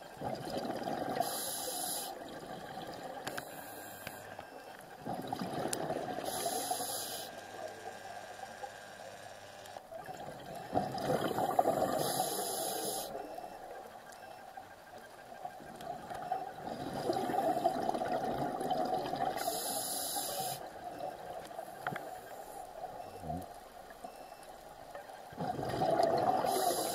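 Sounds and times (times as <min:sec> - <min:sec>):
gurgling exhaled bubbles: 0:00.2 - 0:01.3, 0:05.0 - 0:06.4, 0:10.0 - 0:12.2, 0:15.9 - 0:19.4, 0:25.3 - 0:26.9
regulator hissing inhalation: 0:01.2 - 0:02.2, 0:06.2 - 0:07.4, 0:11.9 - 0:13.2, 0:19.4 - 0:20.7, 0:26.5 - 0:26.9.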